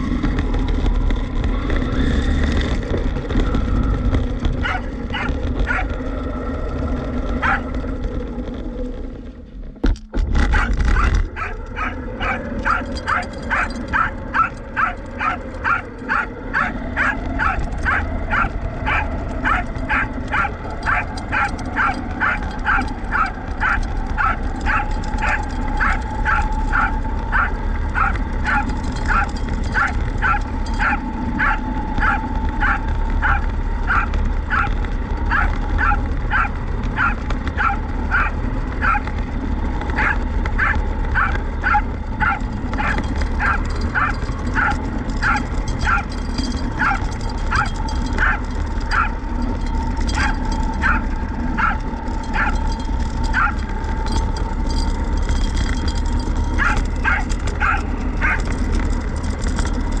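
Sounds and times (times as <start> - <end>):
low rumble: 0.0 - 60.0
dog barking: 4.6 - 6.0, 7.4 - 7.7, 10.5 - 39.2, 39.9 - 49.5, 50.1 - 53.9, 56.6 - 58.6.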